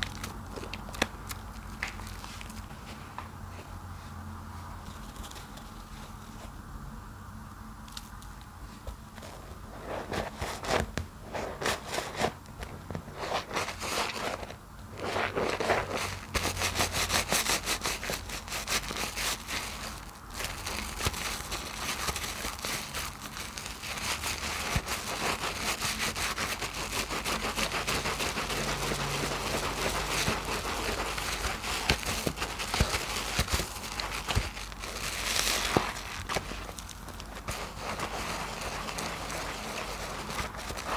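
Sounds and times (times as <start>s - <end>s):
sponges squelching in soap foam: 15.0s - 40.9s.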